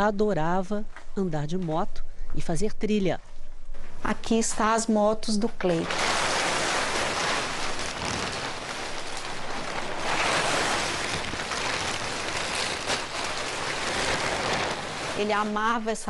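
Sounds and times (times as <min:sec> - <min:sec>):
plastic sheeting rustling: 0:04.4 - 0:16.0.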